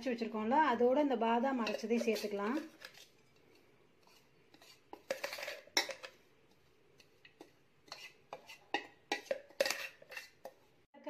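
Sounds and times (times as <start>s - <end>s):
metal spoon scraping in jar: 1.6s - 3.2s, 4.0s - 6.2s, 7.9s - 10.6s.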